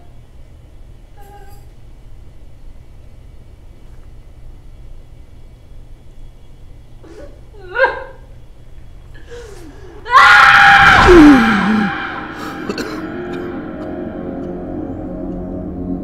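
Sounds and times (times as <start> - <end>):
woman screaming into a wail: 10.1 - 12.7
woman gasping and sobbing: 11.2 - 13.4.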